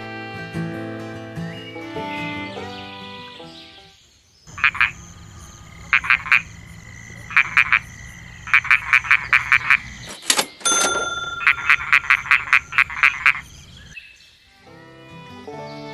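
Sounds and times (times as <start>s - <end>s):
frog croaking: 4.5s - 10.1s, 11.4s - 14.0s.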